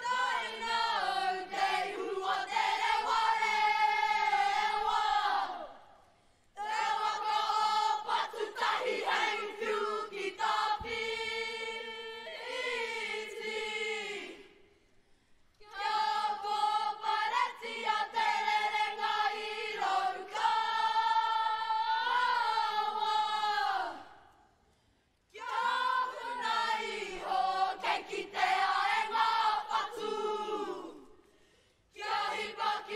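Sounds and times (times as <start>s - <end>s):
children chanting in unison: 25.4s - 31.0s.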